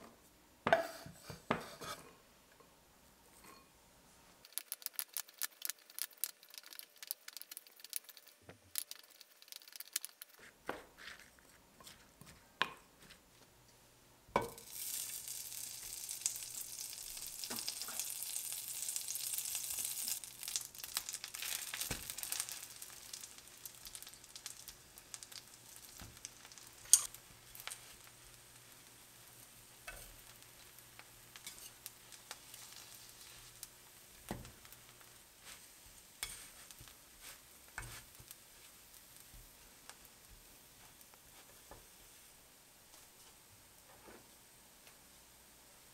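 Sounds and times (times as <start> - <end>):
butter sizzling in skillet: 4.4 - 10.4, 14.4 - 42.5.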